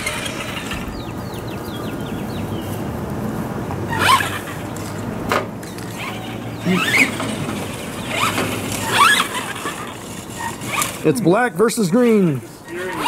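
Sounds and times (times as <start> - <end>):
toy truck motors whining: 0.0 - 1.0, 3.9 - 4.6, 5.8 - 11.1, 12.7 - 13.0.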